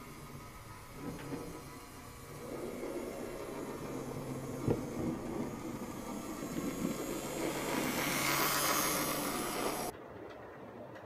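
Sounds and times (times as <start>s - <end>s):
model train motor hum: 0.0s - 9.9s
wheels whirring on track: 0.0s - 10.0s.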